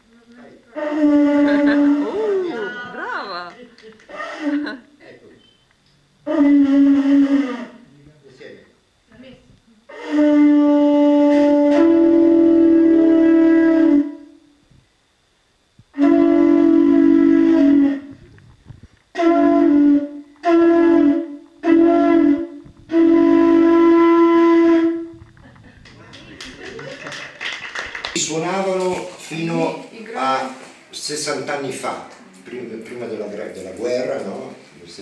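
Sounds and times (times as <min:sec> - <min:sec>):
double flute playing: 0:00.7 - 0:02.5, 0:06.2 - 0:07.8, 0:09.9 - 0:14.4, 0:16.0 - 0:18.4, 0:19.1 - 0:25.3.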